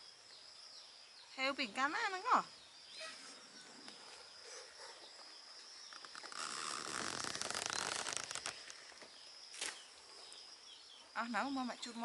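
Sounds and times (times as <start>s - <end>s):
crinkly rustling: 6.0s - 8.9s.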